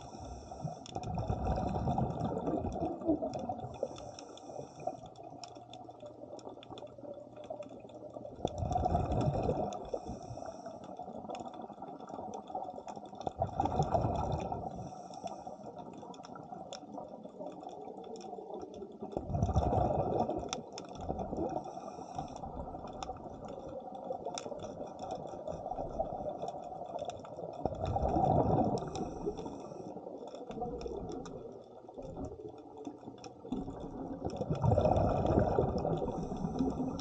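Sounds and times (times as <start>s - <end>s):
regulator inhale hiss: 0.0s - 1.0s, 3.8s - 5.1s, 9.9s - 11.0s, 14.7s - 15.8s, 21.6s - 22.5s
bubbling exhaled air underwater: 0.0s - 15.1s, 15.7s - 37.0s.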